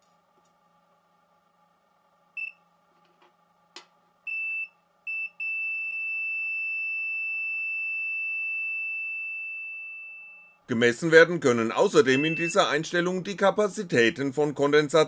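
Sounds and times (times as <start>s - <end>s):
multimeter beeping: 12.0s - 12.8s.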